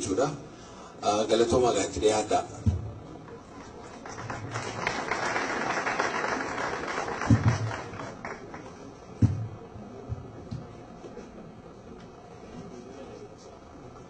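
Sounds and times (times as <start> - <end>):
dull thumps: 2.6 - 3.1, 7.2 - 7.8, 9.2 - 10.7
audience applauding: 3.2 - 9.0.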